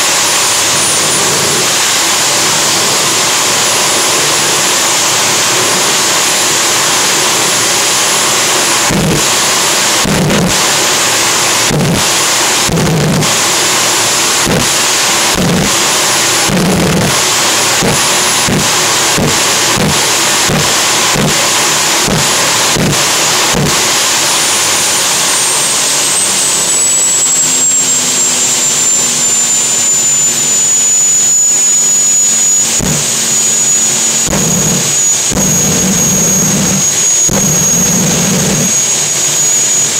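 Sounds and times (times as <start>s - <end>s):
gas turbine engine whine: 0.0s - 39.9s.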